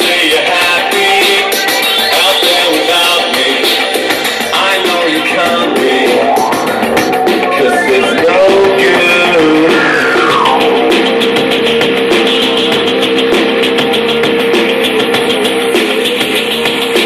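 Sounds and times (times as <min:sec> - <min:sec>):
rock music through speaker: 0:00.0 - 0:17.0
falling pitch glide: 0:05.7 - 0:11.0.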